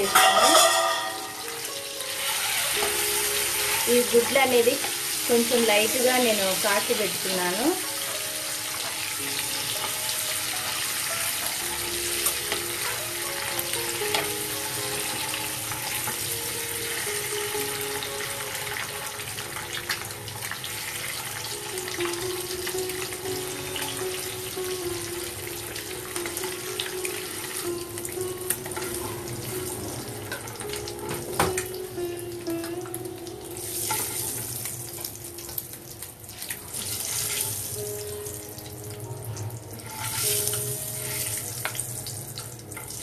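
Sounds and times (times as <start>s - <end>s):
background music: 0.0s - 43.0s
hot oil sizzling: 0.0s - 43.0s.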